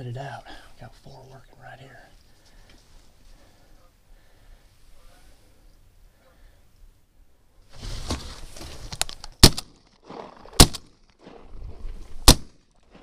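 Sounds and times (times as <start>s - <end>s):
rustling movement noise: 2.1s - 3.6s, 7.6s - 13.0s
shotgun blasts: 9.4s - 11.0s, 12.2s - 12.6s.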